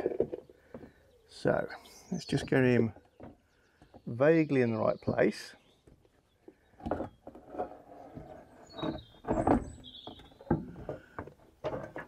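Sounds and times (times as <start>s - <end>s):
plastic bumper knocking and scraping: 0.0s - 0.9s, 6.8s - 12.0s
bird chirping: 0.3s - 11.2s.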